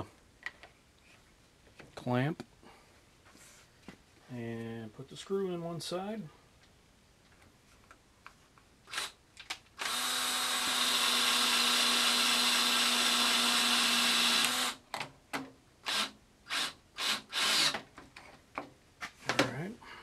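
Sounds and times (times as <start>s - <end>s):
power drill driving screw: 8.9s - 9.2s, 9.8s - 14.8s, 15.8s - 17.8s.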